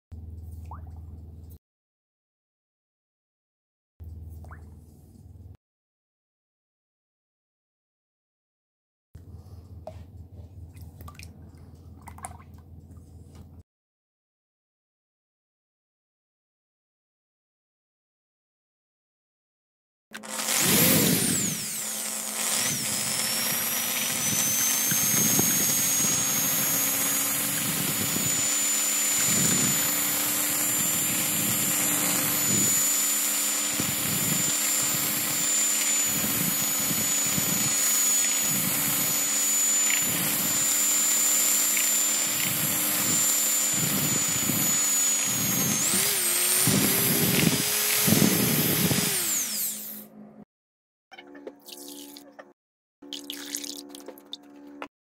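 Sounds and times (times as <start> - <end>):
electric hand whisk whirring: 20.2 - 50.1.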